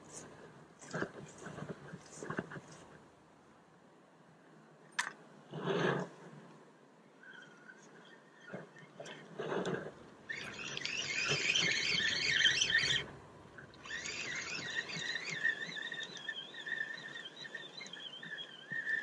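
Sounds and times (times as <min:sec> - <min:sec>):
fishing reel gears whirring: 0:10.3 - 0:13.0, 0:13.8 - 0:19.0.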